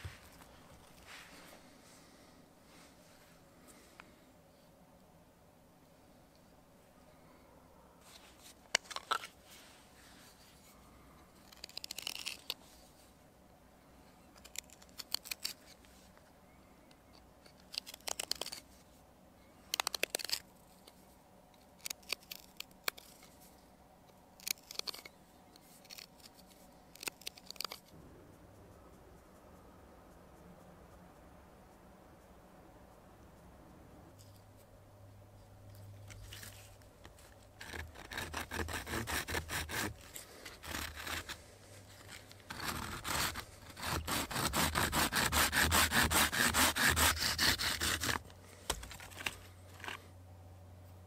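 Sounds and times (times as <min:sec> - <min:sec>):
crisp scraping strokes: 0:00.0 - 0:03.8, 0:36.0 - 0:50.0.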